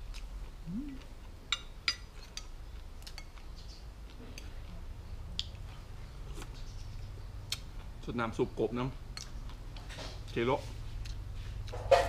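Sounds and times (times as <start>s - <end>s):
low steady hum: 0.0s - 12.0s
chopsticks and spoon clinking dishes: 1.5s - 3.4s, 11.7s - 12.0s.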